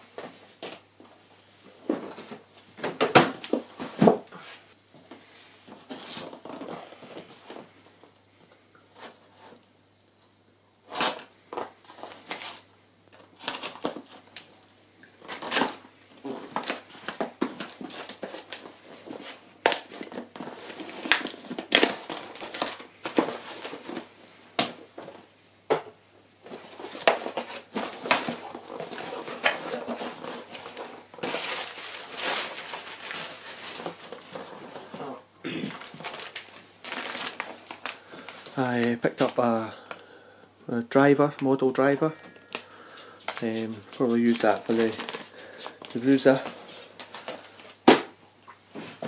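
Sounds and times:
crinkling packing paper: 0:05.8 - 0:07.8, 0:10.9 - 0:24.2, 0:26.5 - 0:40.0, 0:41.9 - 0:47.8
cardboard boxes being handled: 0:15.3 - 0:25.2, 0:26.4 - 0:35.2.

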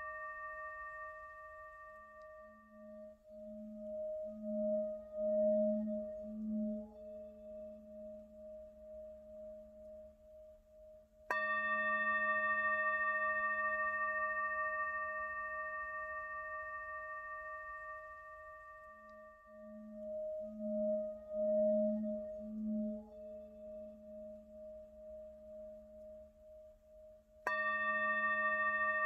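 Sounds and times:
meditation bell ringing: 0:11.3 - 0:25.9, 0:27.5 - 0:29.0.

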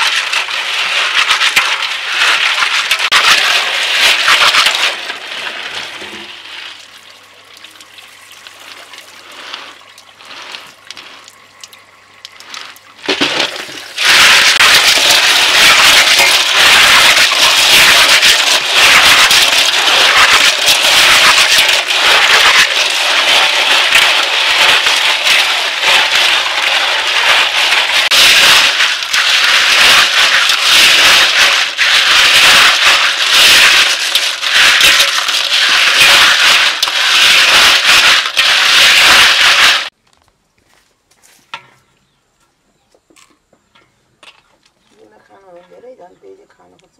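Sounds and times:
hands scrubbing snails: 0:00.0 - 0:05.7, 0:07.6 - 0:39.9
water pouring from a hose: 0:00.0 - 0:40.0
snail shells clattering together: 0:12.3 - 0:39.9.

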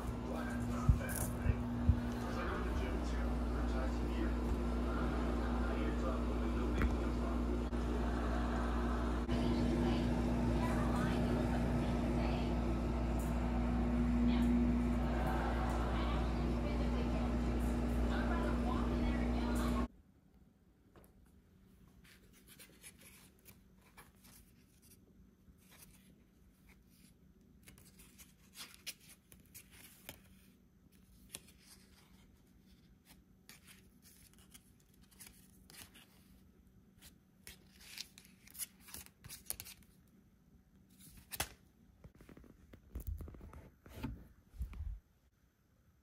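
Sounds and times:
low steady hum: 0:00.0 - 0:20.6.

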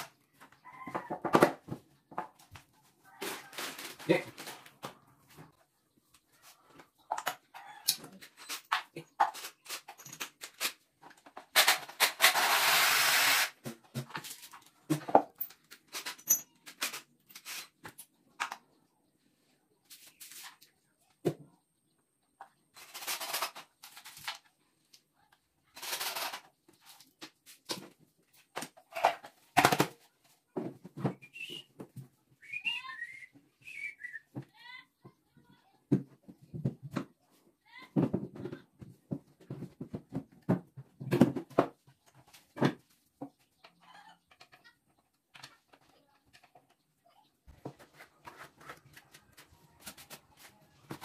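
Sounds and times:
cordless drill running on wood: 0:12.3 - 0:13.5.

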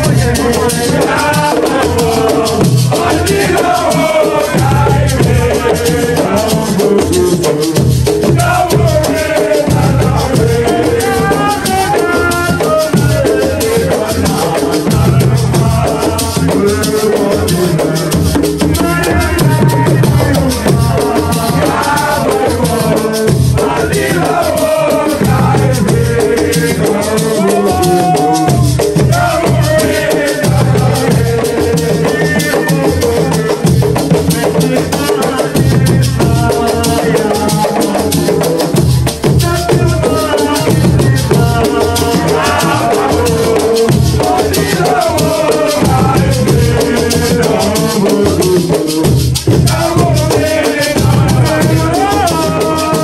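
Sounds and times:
frame drum beat: 0:00.0 - 0:53.0
man singing into microphone: 0:00.0 - 0:53.0
rattling percussion: 0:00.0 - 0:53.0.

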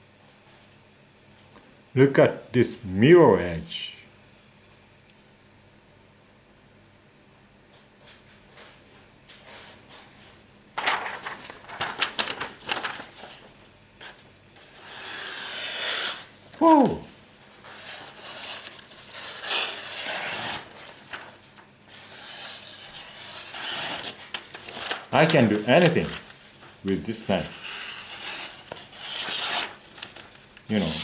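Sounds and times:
paper crinkling: 0:10.8 - 0:15.0, 0:15.7 - 0:31.0
knife slicing paper: 0:14.0 - 0:16.3, 0:17.8 - 0:26.4, 0:27.5 - 0:31.0.

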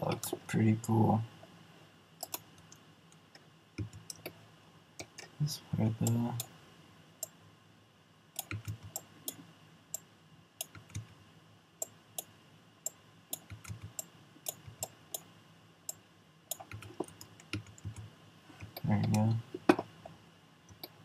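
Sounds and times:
mouse and keyboard clicks: 0:08.4 - 0:09.4, 0:10.6 - 0:11.1, 0:16.5 - 0:19.9.

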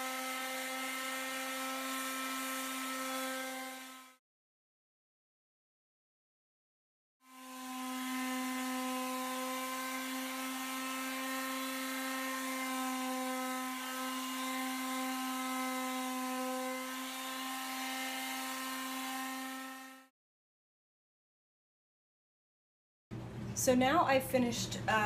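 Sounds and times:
electric sander sanding wood: 0:00.0 - 0:04.2, 0:07.3 - 0:20.1.

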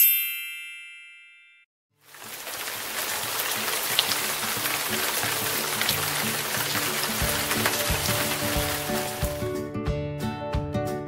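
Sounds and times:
bright chime: 0:00.0 - 0:01.7
granules pouring: 0:02.1 - 0:09.4.

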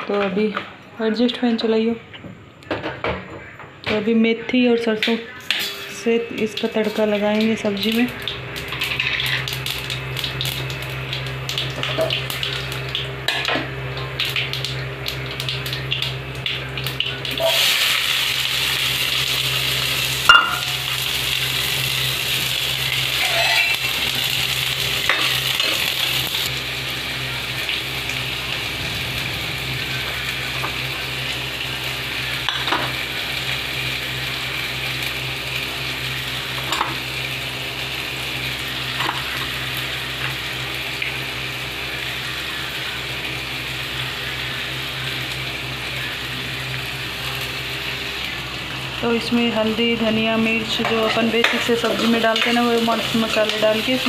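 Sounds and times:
loud sizzle of frying: 0:05.0 - 0:54.0
seeds crackling and popping in oil: 0:06.5 - 0:17.6
spoon knocking on pan: 0:20.3 - 0:20.8.

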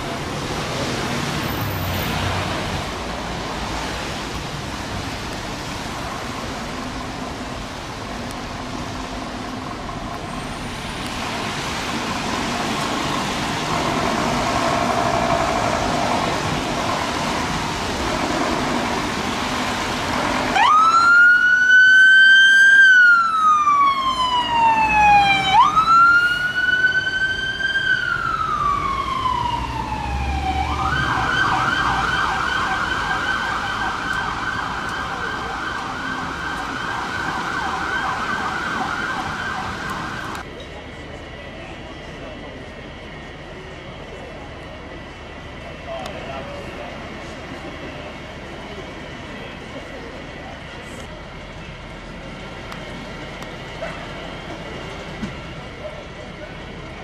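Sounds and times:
engine and road noise: 0:00.0 - 0:57.0
fire engine siren: 0:11.6 - 0:40.5.

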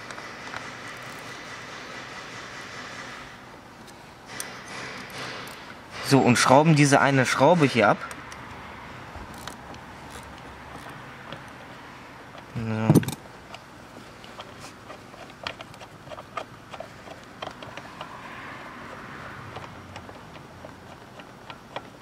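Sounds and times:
ratchet spanner metallic clicks: 0:00.0 - 0:03.2, 0:04.3 - 0:06.4, 0:09.3 - 0:11.6.

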